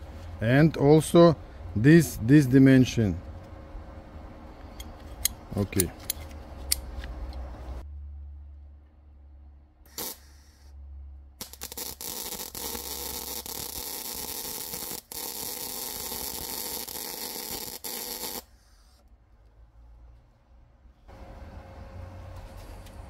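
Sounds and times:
low electrical hum: 0.0s - 23.0s
electric arc welding crackling hiss: 9.9s - 10.7s, 11.4s - 18.6s.

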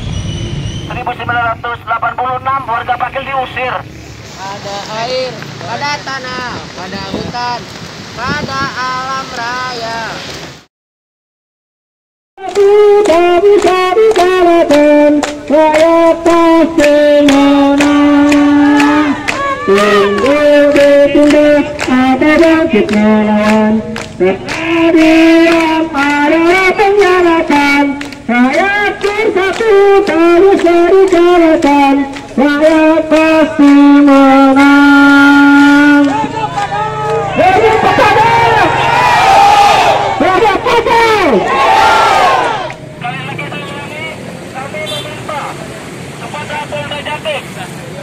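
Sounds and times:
person singing: 12.4s - 36.4s.

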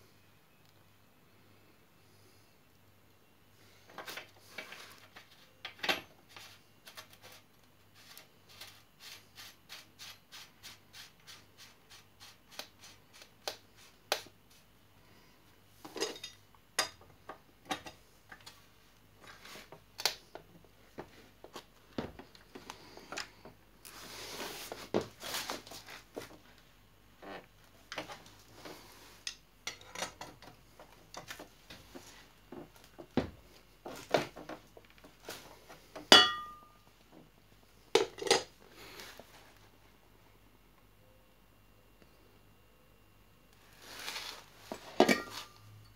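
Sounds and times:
ringing metallic clink: 36.1s - 36.8s.

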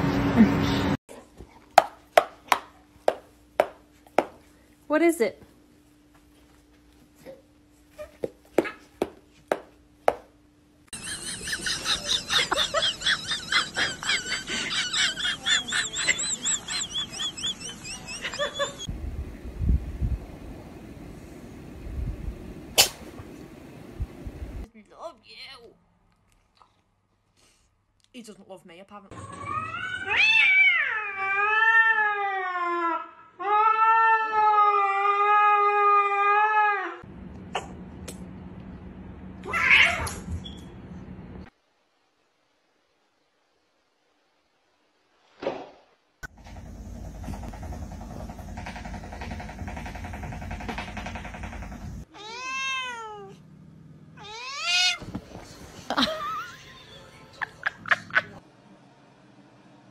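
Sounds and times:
cat yowling: 29.2s - 37.0s, 39.4s - 40.2s, 52.1s - 53.4s, 54.2s - 55.0s.

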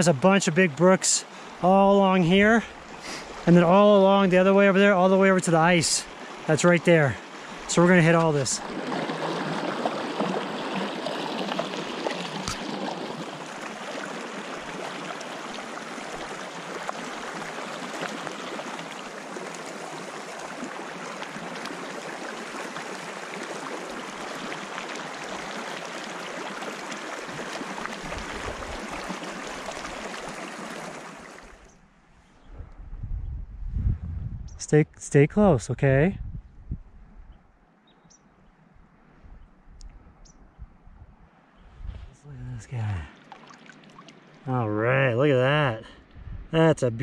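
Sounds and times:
stream flowing over rocks: 0.0s - 31.7s, 42.7s - 44.6s.

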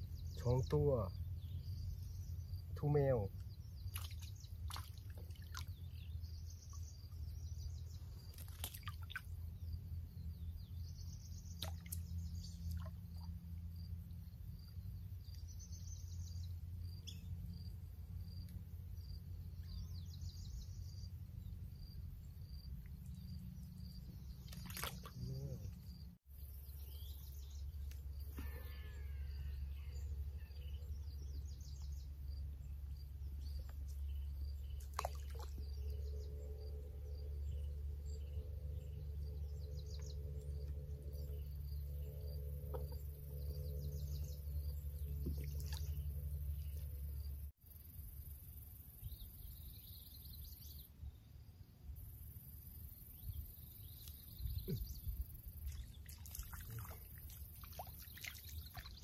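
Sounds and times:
steady low rumble: 30.7s - 47.6s.

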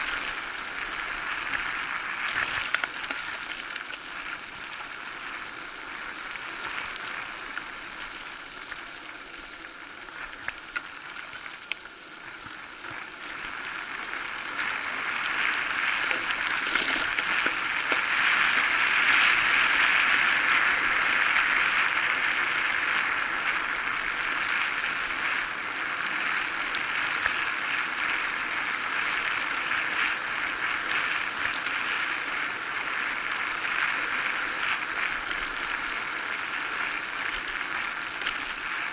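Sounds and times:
small clicks and rattles: 0.0s - 4.9s, 37.2s - 38.9s
bike tyres rolling on dirt: 0.0s - 38.9s.

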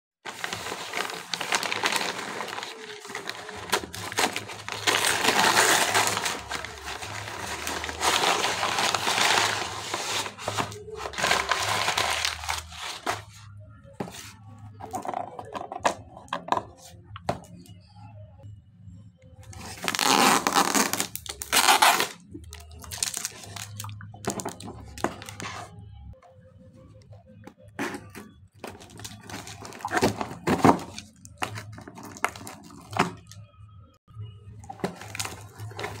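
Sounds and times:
paper bag crinkling: 0.3s - 13.4s.

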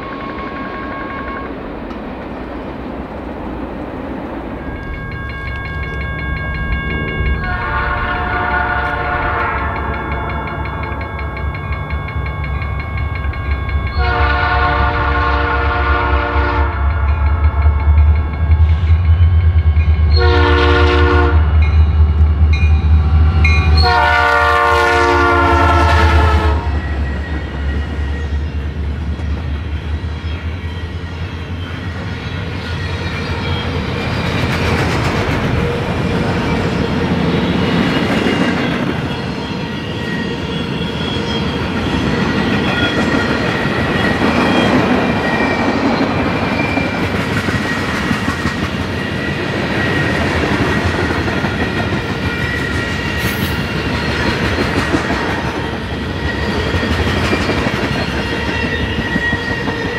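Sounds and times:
train rumbling past: 0.0s - 59.9s
locomotive air horn blowing: 6.9s - 11.0s, 13.9s - 17.2s, 20.1s - 21.6s, 23.7s - 26.9s.

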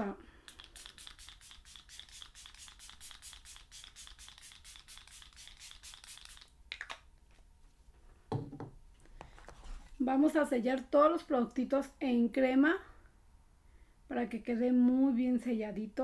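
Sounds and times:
spray bottle hissing sprays: 0.5s - 6.5s
soft knock: 8.3s - 8.8s.

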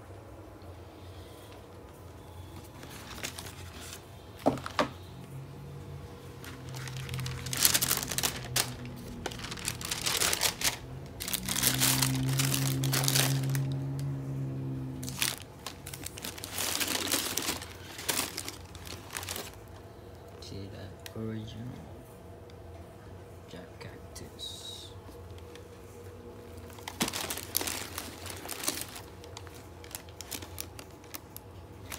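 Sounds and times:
tissue paper crinkling: 2.5s - 4.8s, 6.4s - 14.0s, 15.0s - 19.8s, 26.5s - 31.9s.

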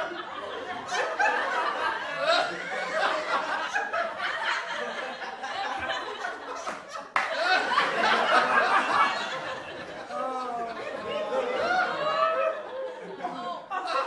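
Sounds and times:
people laughing: 0.0s - 14.0s
people talking: 8.1s - 14.0s.

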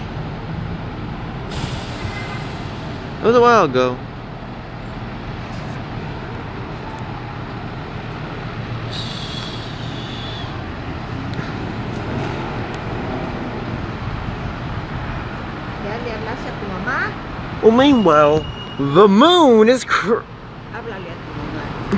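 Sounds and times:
street traffic noise: 0.0s - 21.9s
high-pitched squeal: 8.8s - 10.6s.

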